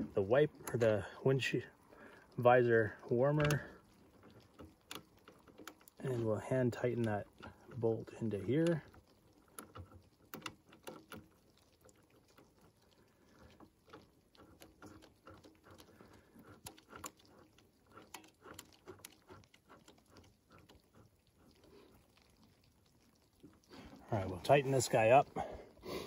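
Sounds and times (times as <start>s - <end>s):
faint small clicks: 3.4s - 6.2s, 8.6s - 24.0s.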